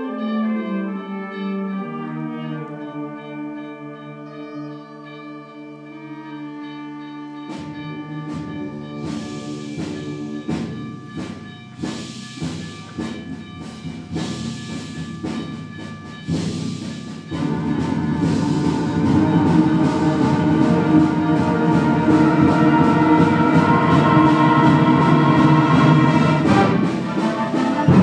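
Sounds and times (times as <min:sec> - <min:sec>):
sharp percussion strikes: 0:03.8 - 0:28.0
concert band playing: 0:05.7 - 0:28.0.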